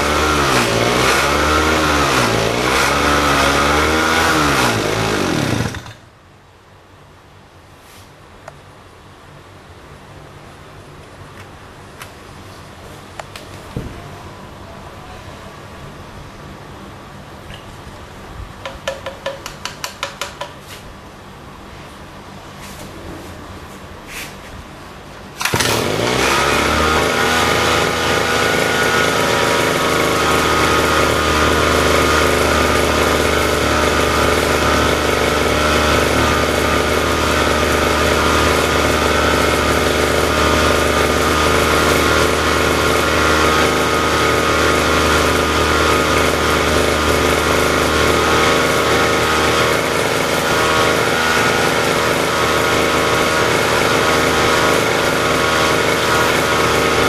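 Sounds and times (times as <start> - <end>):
lawn mower engine running: 0.0 - 6.1, 25.3 - 57.0.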